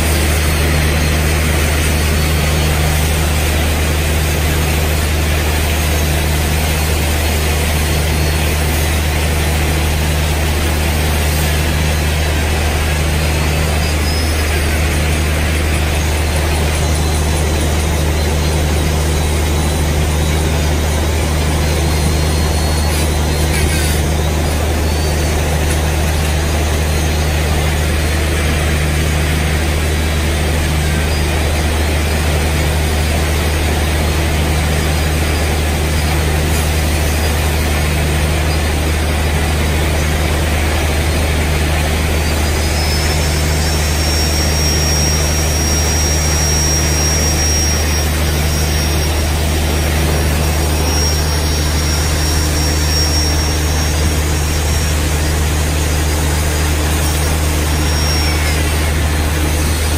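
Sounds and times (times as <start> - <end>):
high whine: 0.0 - 59.9.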